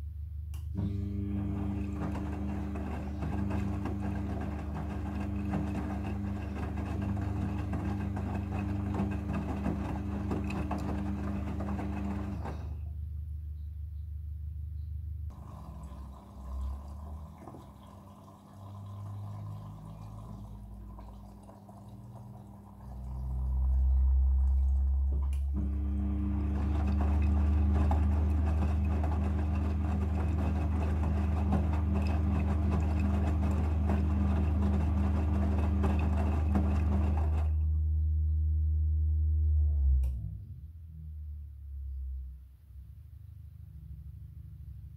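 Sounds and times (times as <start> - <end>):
washing machine motor hum: 0.6 - 13.1, 15.3 - 40.3
water and clothes sloshing: 15.3 - 37.5.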